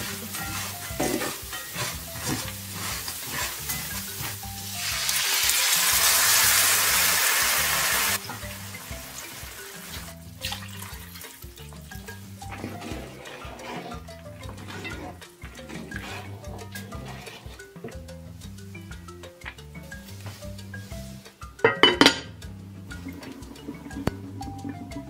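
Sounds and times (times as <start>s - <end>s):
rice frying in oil: 0.0s - 16.1s
water sizzling in hot pan: 0.0s - 17.8s
background music: 0.0s - 25.0s
wooden spoon stirring: 0.0s - 25.0s.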